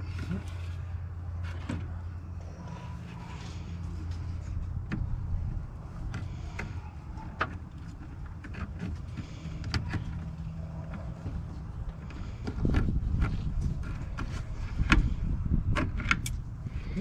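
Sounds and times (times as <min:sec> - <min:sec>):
steady low hum: 0:00.0 - 0:17.0
clicks and knocks of plastic and metal: 0:03.6 - 0:16.4.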